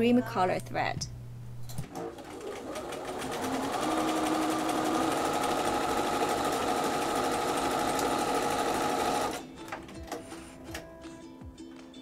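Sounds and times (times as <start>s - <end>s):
sewing machine stitching: 1.8s - 9.4s.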